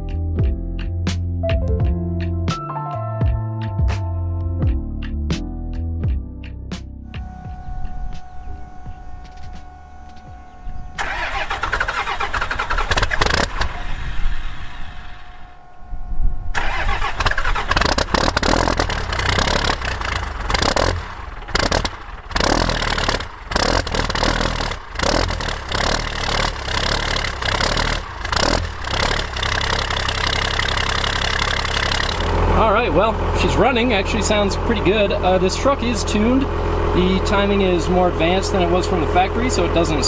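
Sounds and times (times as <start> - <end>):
diesel engine running unevenly: 7.2 - 15.6, 16.5 - 40.0
starter motor cranking: 10.8 - 15.4, 16.5 - 32.6.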